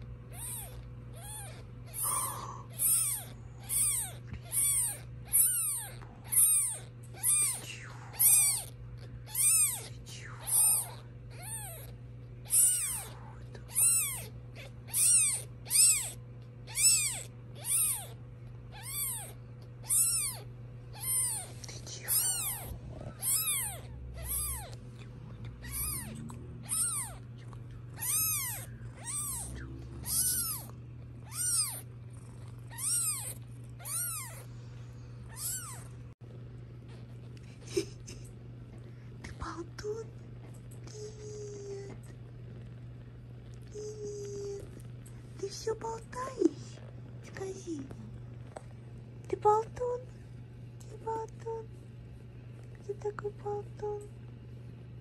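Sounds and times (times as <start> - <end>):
kitten mewing: 0.0 - 34.5, 35.2 - 36.0.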